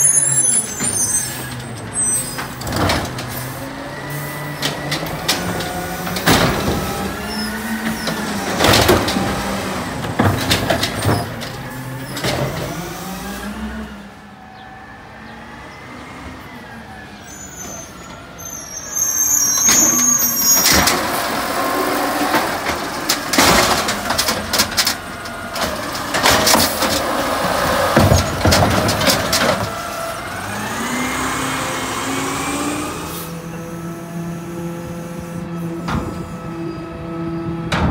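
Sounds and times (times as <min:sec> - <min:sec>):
garbage truck engine: 0:00.0 - 0:37.9
cart clanking against truck: 0:00.1 - 0:13.0, 0:17.5 - 0:31.3, 0:37.6 - 0:37.9.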